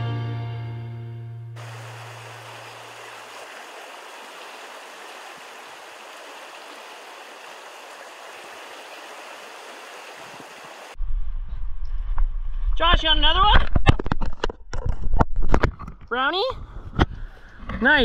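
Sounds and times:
river water flowing: 1.6 - 11.0.

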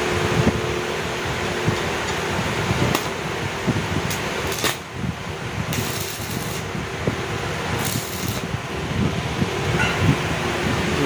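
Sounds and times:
welding arc crackling: 1.8 - 8.9.

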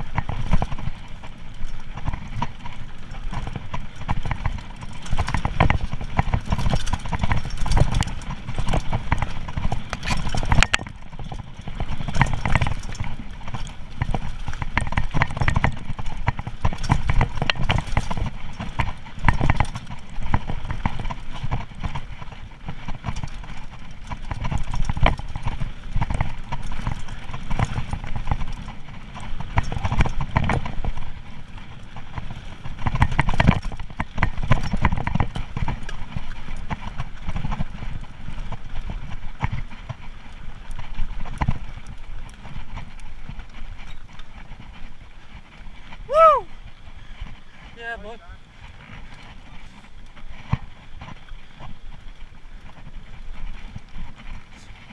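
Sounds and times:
bike rattling over bumps: 0.0 - 54.9
wind rumble on microphone: 0.0 - 54.9.

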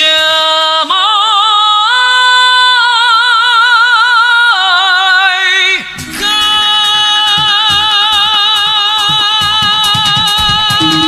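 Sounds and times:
high solo singing voice: 0.0 - 11.0
instrumental music with steady beat: 5.8 - 11.0.

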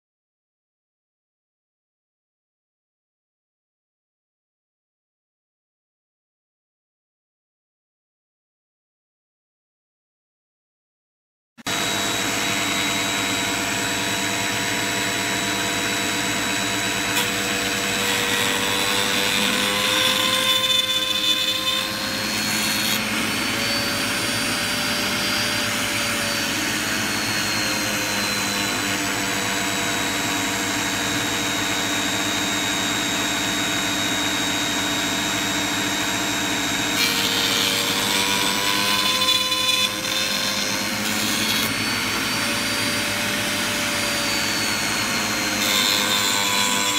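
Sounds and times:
router bit cutting wood: 11.6 - 46.9
router whining: 11.6 - 46.9.

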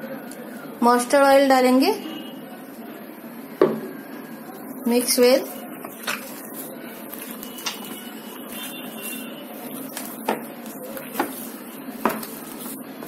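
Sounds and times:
hand kneading wet mince: 4.5 - 13.0.

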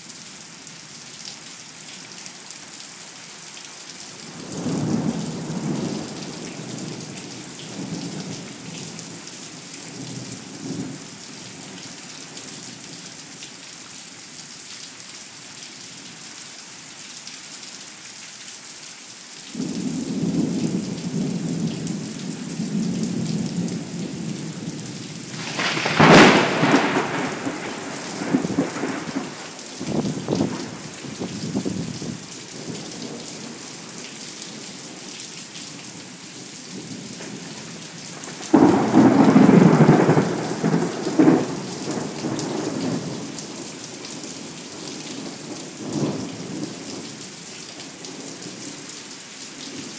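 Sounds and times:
heavy rain: 0.0 - 49.9
rolling thunder rumble: 22.6 - 32.7, 38.2 - 43.2
loud thunderclap: 25.3 - 32.1, 38.3 - 43.0.

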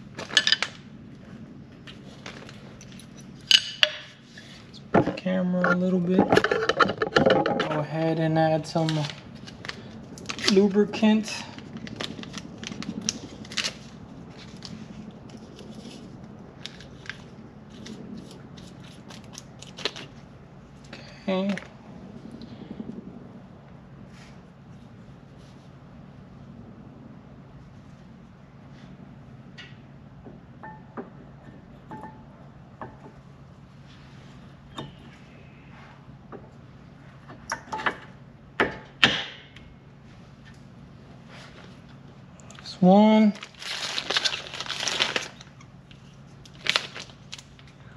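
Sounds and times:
hand-handling clicks and crinkles: 0.0 - 4.0, 8.6 - 21.8, 41.5 - 47.9
hard parts clacking: 4.9 - 8.0.

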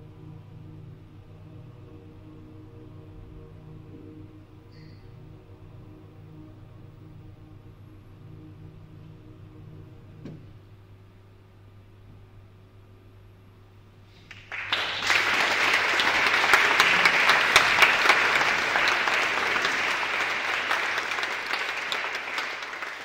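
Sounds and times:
audience applause: 14.3 - 23.0.

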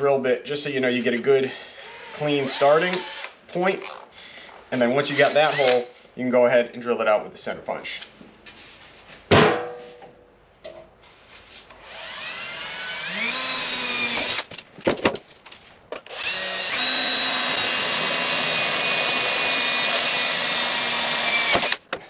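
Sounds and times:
electric drill boring into metal: 1.8 - 3.4, 11.8 - 14.5, 16.1 - 21.8.

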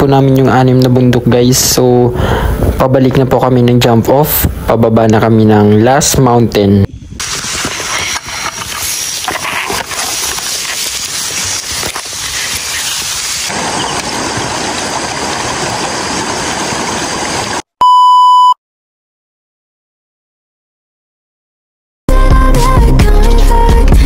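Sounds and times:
footsteps rustling through tall grass: 7.2 - 15.4
high test-tone beep: 17.8 - 18.6.

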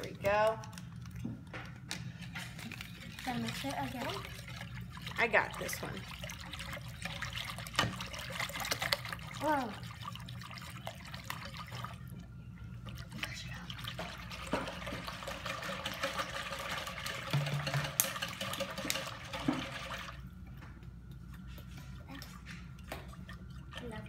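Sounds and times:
liquid swishing in a bowl: 0.0 - 24.0.

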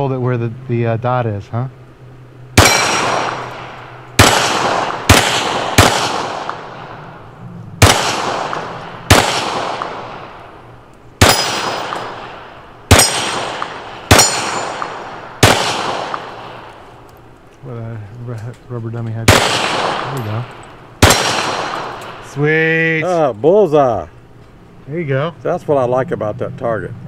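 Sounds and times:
metallic ring of steel targets: 2.6 - 4.2, 11.2 - 12.3, 12.9 - 15.2, 19.9 - 20.8
pistol shots: 2.6 - 7.1, 7.8 - 10.6, 11.2 - 16.8, 19.3 - 22.3.

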